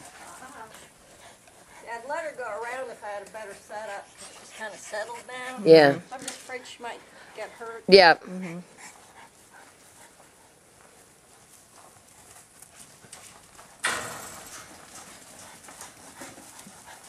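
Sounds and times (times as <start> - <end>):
sheep hooves on dirt: 8.8 - 17.0.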